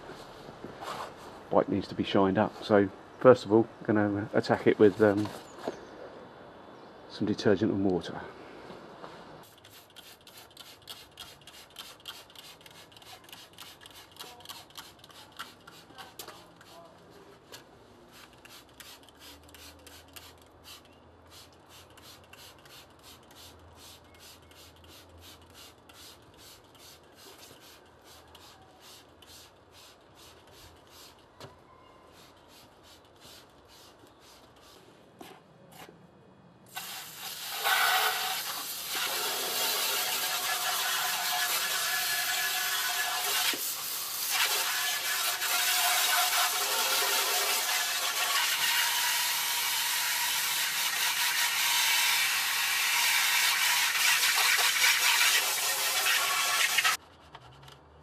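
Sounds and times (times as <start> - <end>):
hose nozzle spraying water: 9.4 - 16.8, 36.7 - 57.0
spray bottle squirting: 9.4 - 16.8, 18.2 - 31.2, 36.7 - 57.0.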